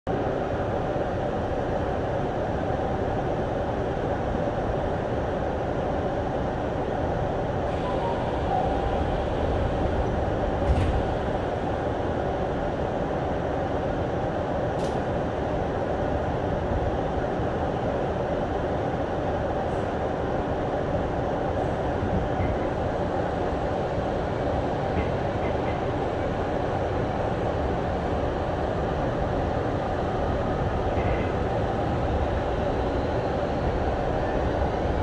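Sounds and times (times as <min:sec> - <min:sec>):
train equipment humming: 0:06.2 - 0:35.0
train doors closing knock: 0:10.6 - 0:11.4.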